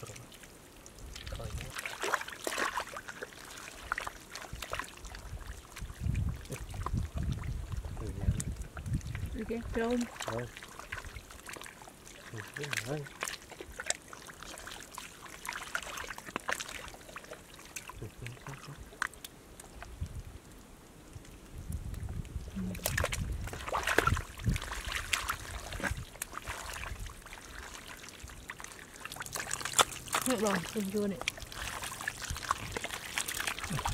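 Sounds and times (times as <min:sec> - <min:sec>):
water splashing: 0:00.0 - 0:20.1, 0:22.4 - 0:33.9
water trickling: 0:00.0 - 0:33.9
hands squelching in mud: 0:01.2 - 0:07.3, 0:09.6 - 0:18.4, 0:22.7 - 0:33.9.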